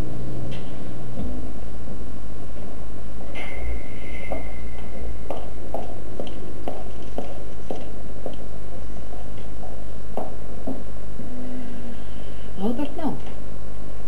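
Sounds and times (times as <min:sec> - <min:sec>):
steady low hum: 0:00.0 - 0:14.0
footsteps on wooden floor: 0:04.3 - 0:10.9.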